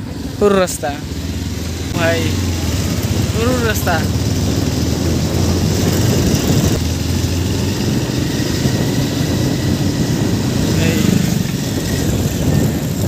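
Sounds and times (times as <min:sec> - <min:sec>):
motorcycle engine running: 0:00.0 - 0:13.0
wind and road noise: 0:00.0 - 0:13.0.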